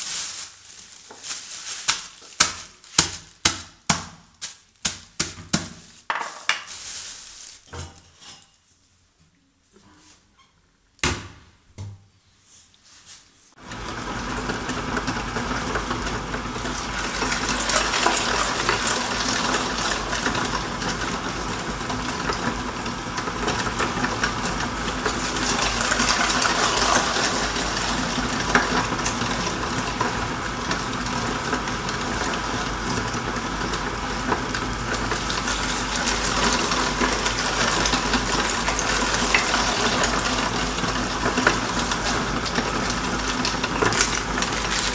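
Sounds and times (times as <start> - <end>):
electric meat mincer grinding bone: 13.6 - 44.9.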